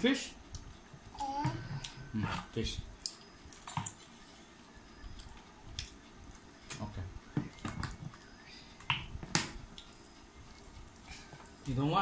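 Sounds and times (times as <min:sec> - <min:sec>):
chewing: 0:05.0 - 0:06.5, 0:09.7 - 0:11.7.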